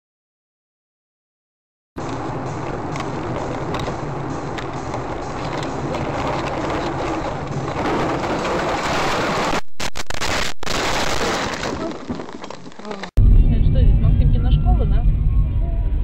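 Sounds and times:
car engine and tyres: 0:02.0 - 0:09.6
car ploughing into deep snow: 0:02.1 - 0:13.1.

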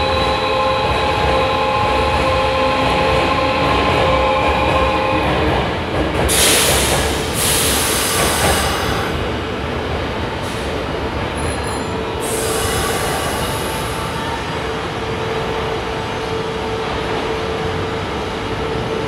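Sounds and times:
train wheels rumbling: 0:00.0 - 0:19.0
high hiss and wheel squeal: 0:06.4 - 0:09.1, 0:12.2 - 0:14.1.

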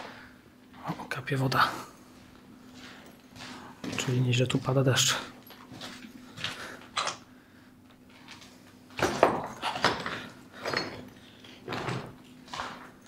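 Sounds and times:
footsteps crunching on concrete debris: 0:02.2 - 0:06.6.

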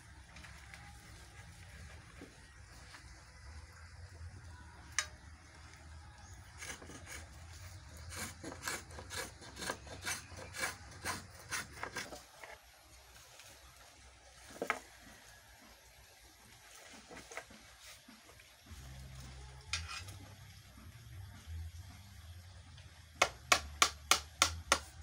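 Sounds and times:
hand tool rasping on wood: 0:06.6 - 0:12.3.

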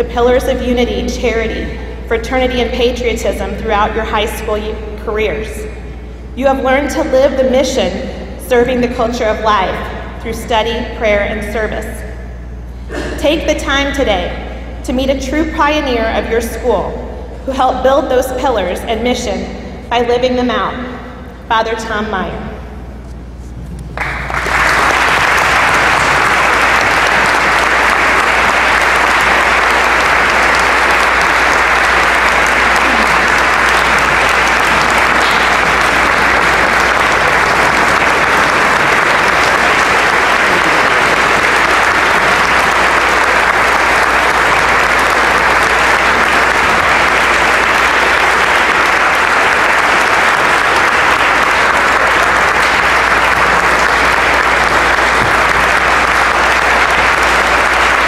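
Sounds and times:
audience applauding: 0:24.0 - 0:58.0.

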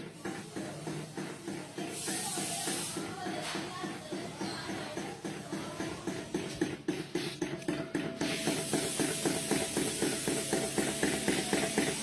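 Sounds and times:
hot-air engine fan clatter: 0:00.0 - 0:12.0
steady hiss: 0:08.2 - 0:12.0.

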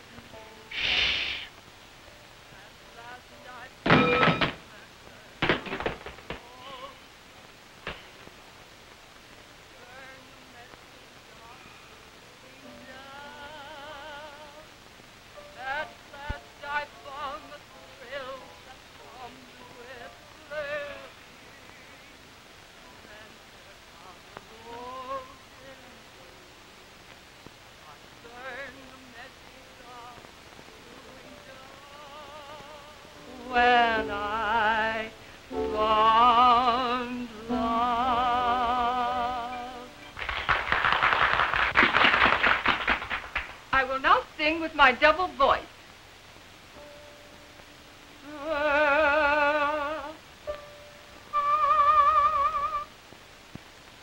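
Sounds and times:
woman singing operatically: 0:02.5 - 0:05.4, 0:06.3 - 0:07.1, 0:09.7 - 0:14.8, 0:15.5 - 0:22.2, 0:22.8 - 0:26.4, 0:27.8 - 0:40.1, 0:48.2 - 0:50.2, 0:51.3 - 0:52.9
piano accompaniment: 0:30.8 - 0:40.7, 0:46.8 - 0:51.8.

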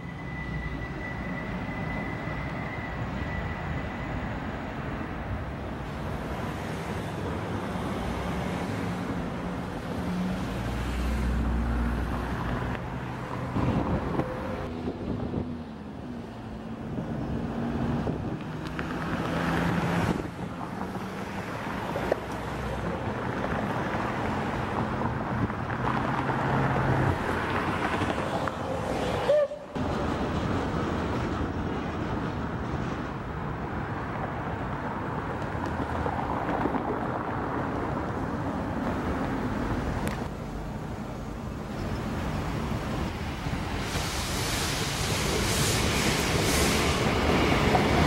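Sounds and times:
road traffic: 0:00.0 - 0:48.0
steam locomotive blowing off steam: 0:43.7 - 0:48.0.

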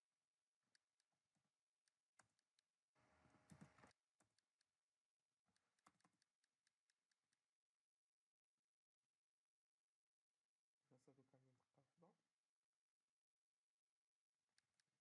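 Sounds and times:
faint keyboard keystrokes: 0:03.3 - 0:04.5.

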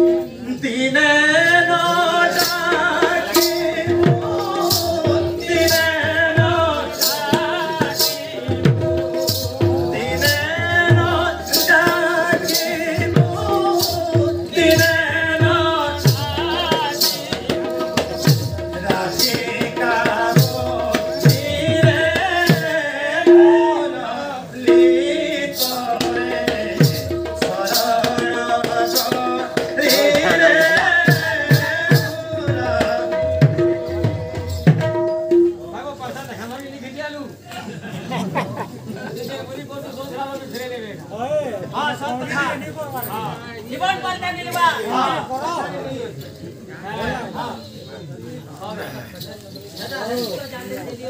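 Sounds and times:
sharp rattling percussion: 0:01.4 - 0:36.4, 0:48.8 - 0:51.0
drum strokes dropping in pitch: 0:20.0 - 0:24.0.

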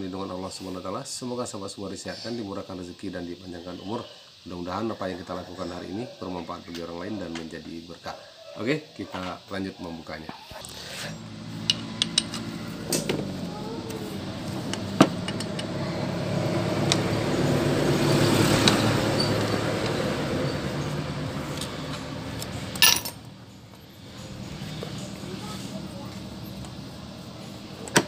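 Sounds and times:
vehicle engine running: 0:10.6 - 0:28.0.

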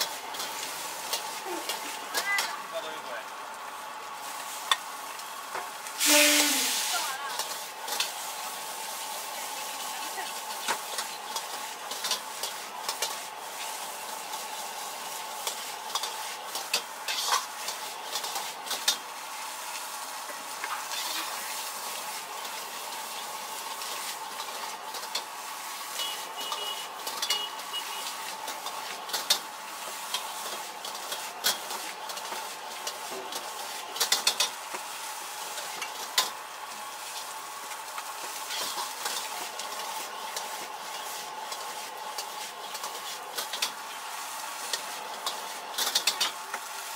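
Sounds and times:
ladle and spatula scraping wok: 0:00.0 - 0:02.6, 0:06.0 - 0:19.2, 0:20.3 - 0:34.8, 0:38.0 - 0:46.6
vegetables sizzling in a wok: 0:00.0 - 0:46.9
metal clacks on wok: 0:26.5 - 0:27.5, 0:34.0 - 0:34.6, 0:44.7 - 0:46.4.

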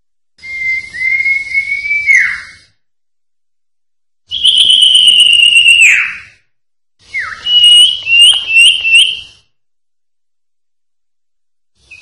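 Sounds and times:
bird whistling and singing: 0:00.4 - 0:02.8, 0:04.3 - 0:06.4, 0:07.0 - 0:09.4.

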